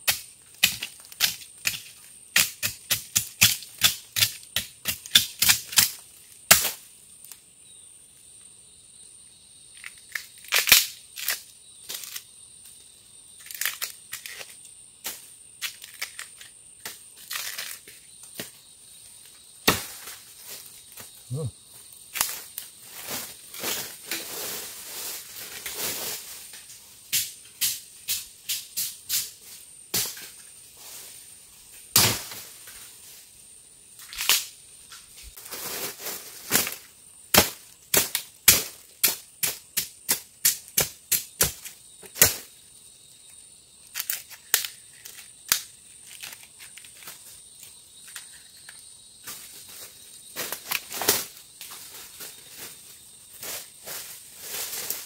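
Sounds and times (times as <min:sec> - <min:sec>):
dry bamboo litter rustling: 0:22.1 - 0:26.8, 0:35.2 - 0:36.9, 0:49.2 - 0:55.0.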